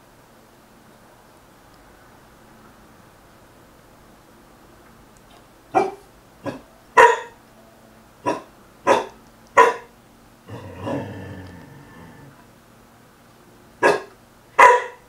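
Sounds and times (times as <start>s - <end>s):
puppy barking: 5.7s - 7.4s, 8.2s - 9.9s, 13.8s - 15.0s
puppy growling: 10.4s - 12.5s.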